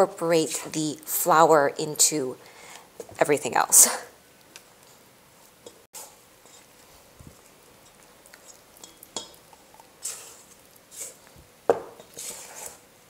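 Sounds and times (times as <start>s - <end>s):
rustling scrapes: 4.9s - 7.5s, 10.0s - 11.4s, 12.0s - 12.8s.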